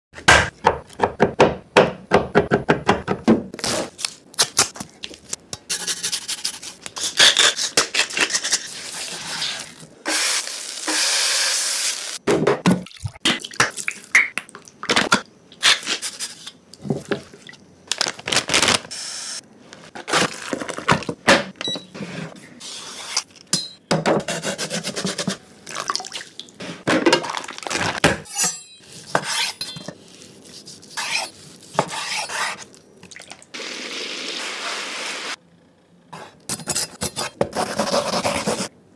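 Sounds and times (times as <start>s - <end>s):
wet squelching and pouring: 25.6s - 26.6s, 27.3s - 28.0s, 32.6s - 33.6s.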